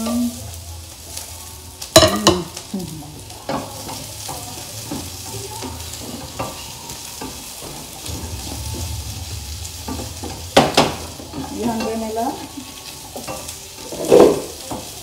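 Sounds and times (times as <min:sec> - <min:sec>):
onion and garlic sizzling: 0:00.0 - 0:15.0
utensil clattering on pan: 0:03.4 - 0:15.0
spatula scraping pan: 0:03.5 - 0:15.0.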